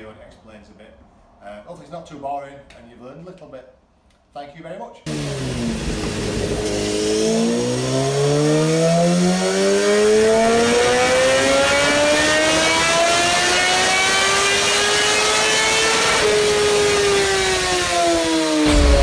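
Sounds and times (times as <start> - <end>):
motorcycle engine revving under load: 5.1 - 19.0.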